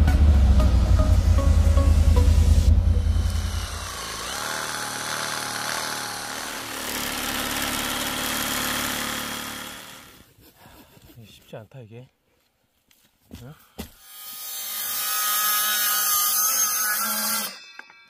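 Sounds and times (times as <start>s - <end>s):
music with heavy bass: 0.0s - 3.6s
chainsaw cutting log: 3.2s - 10.3s.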